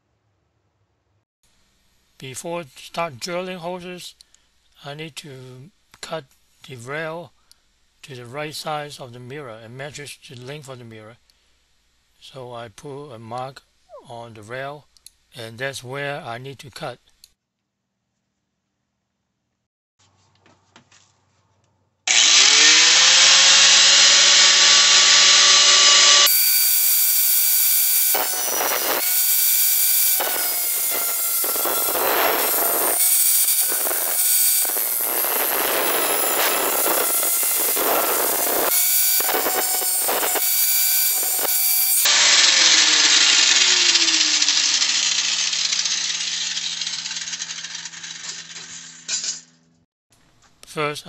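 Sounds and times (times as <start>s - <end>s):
angle grinder cutting metal: 22.1s - 49.5s.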